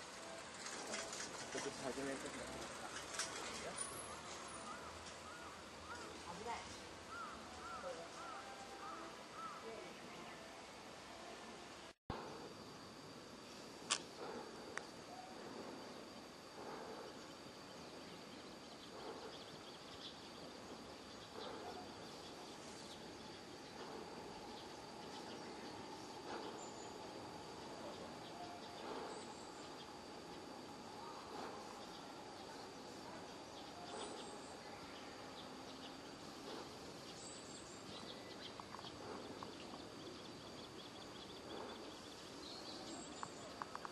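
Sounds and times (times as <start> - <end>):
steady hiss: 0.0 - 43.9
small ticks: 13.9 - 14.9
faint bird chirps: 14.2 - 43.9.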